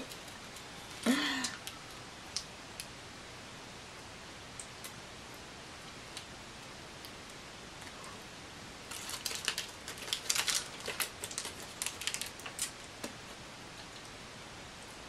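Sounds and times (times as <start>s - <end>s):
plastic wrappers crinkling: 8.9s - 13.1s.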